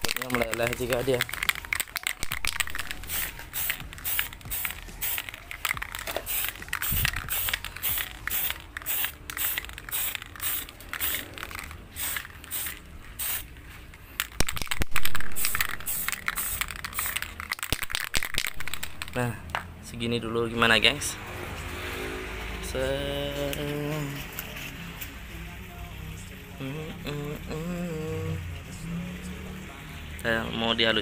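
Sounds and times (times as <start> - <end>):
spray can hissing bursts: 0.0 - 13.6, 14.2 - 19.2.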